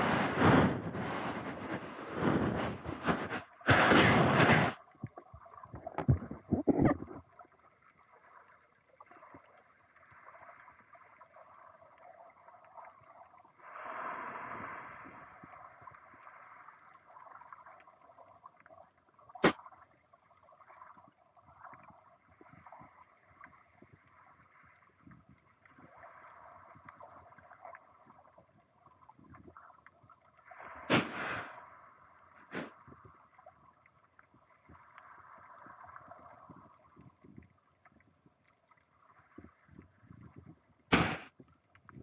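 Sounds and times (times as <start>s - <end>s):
muffled underwater hiss: 0.0s - 7.6s, 13.4s - 17.8s, 30.4s - 33.5s, 40.9s - 41.5s.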